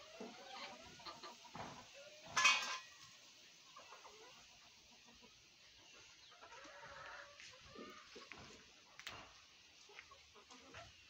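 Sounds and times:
chickens clucking softly: 0.0s - 11.0s.

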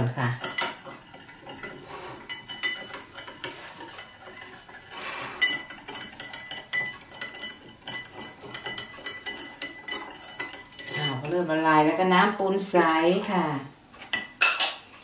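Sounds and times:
metal spoon clinking in glass jug: 0.4s - 11.3s.

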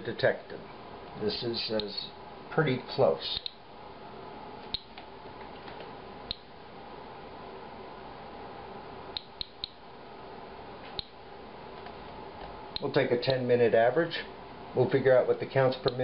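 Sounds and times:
faint steady hum: 0.0s - 16.0s
geiger counter clicking: 3.4s - 3.6s, 4.7s - 5.1s, 6.3s - 6.5s, 9.2s - 9.8s, 11.0s - 11.2s.

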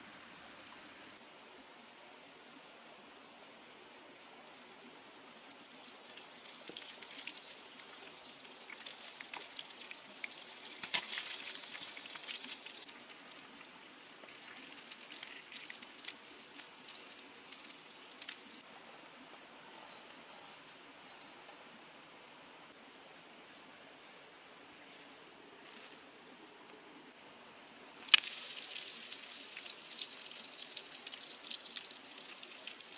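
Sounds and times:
hot oil sizzling and crackling: 5.8s - 18.6s, 28.0s - 32.9s.

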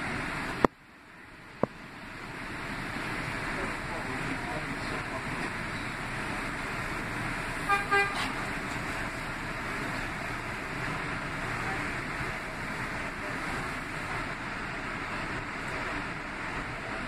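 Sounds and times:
subway train rumbling: 0.0s - 17.0s
train horn toots: 7.6s - 8.4s.

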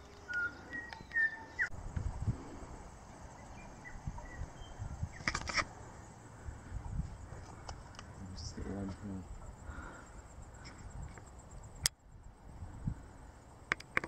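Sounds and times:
bird whistling: 0.1s - 1.7s.

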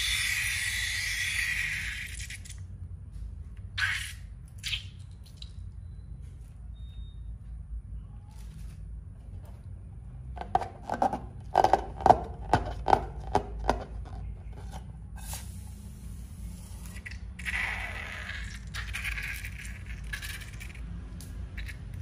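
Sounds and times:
liquid squirting from balloon: 0.0s - 2.7s, 3.8s - 5.5s, 15.2s - 20.9s.

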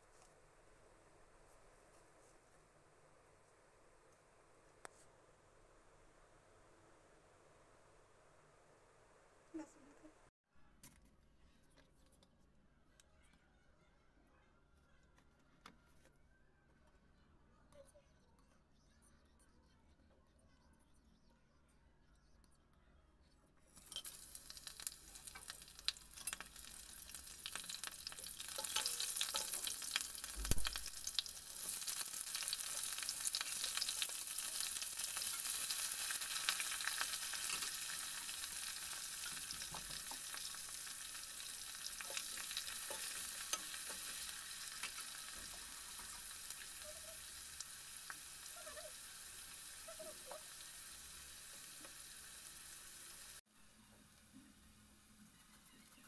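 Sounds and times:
spices sizzling in hot oil: 23.7s - 56.0s.

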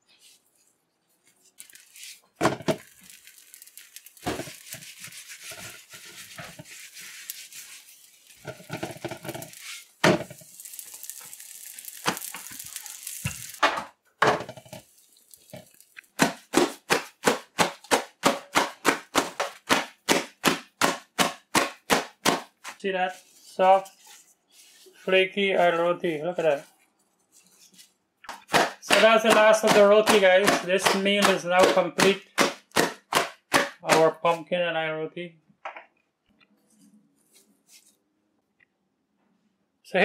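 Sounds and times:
flatbread sizzling on a griddle: 1.7s - 13.6s, 14.6s - 16.2s.

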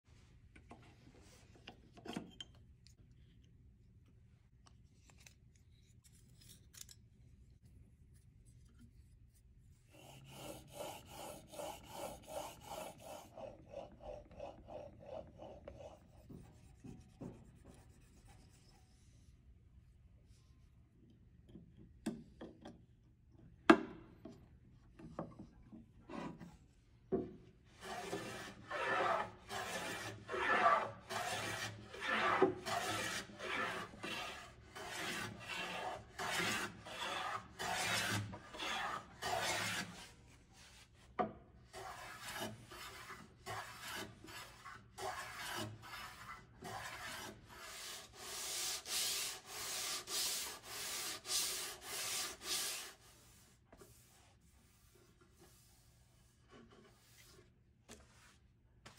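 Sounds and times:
hand plane cutting strokes: 10.0s - 16.2s, 27.8s - 40.1s, 41.7s - 54.1s
hand rubbing wood edge: 27.8s - 40.1s, 41.8s - 58.9s.

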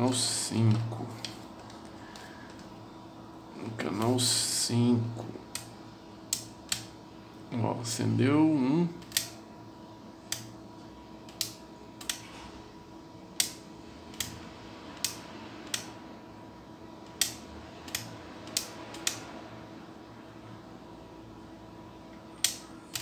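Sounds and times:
faint hum: 0.0s - 23.0s
toggle switch clicking: 10.3s - 10.5s.

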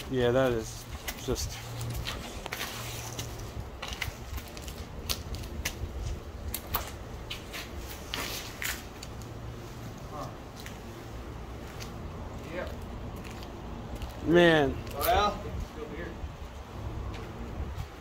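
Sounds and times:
footsteps crunching on grit: 0.4s - 14.3s.

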